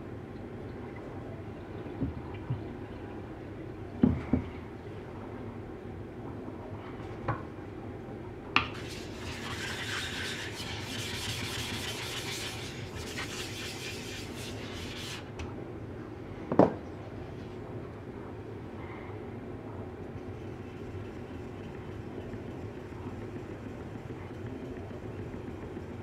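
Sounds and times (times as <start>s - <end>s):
plate scraping on whetstone: 8.8s - 15.3s.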